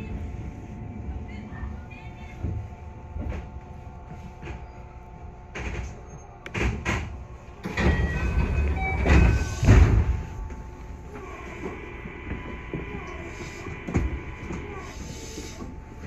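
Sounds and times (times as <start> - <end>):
train doors closing with a thud: 5.4 - 15.8.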